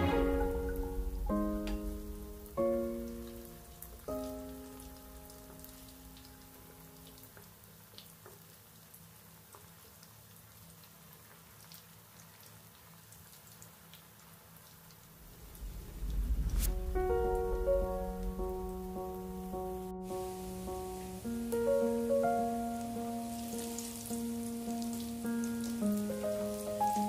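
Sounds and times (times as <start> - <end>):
low rumble: 0.0 - 5.3, 15.2 - 21.1
background music: 0.0 - 5.7
deep-frying sizzle and pops: 7.2 - 15.1.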